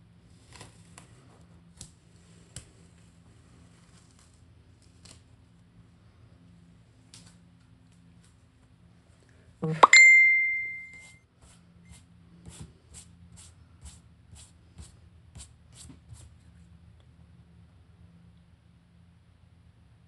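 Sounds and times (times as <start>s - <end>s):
bright ding: 9.7s - 11.1s.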